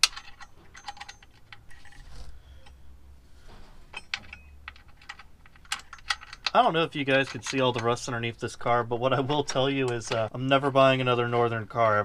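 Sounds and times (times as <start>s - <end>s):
metallic clicks of nut and washer: 0.0s - 1.9s, 3.9s - 6.6s.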